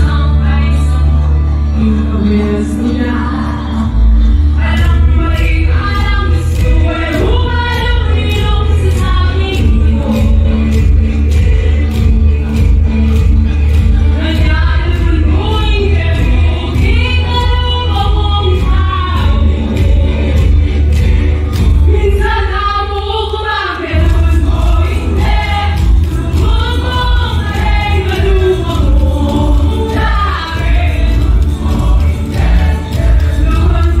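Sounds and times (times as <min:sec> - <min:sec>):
mixed choir singing: 0:02.8 - 0:13.2, 0:15.0 - 0:34.0
amplified accompaniment with beat: 0:23.9 - 0:34.0.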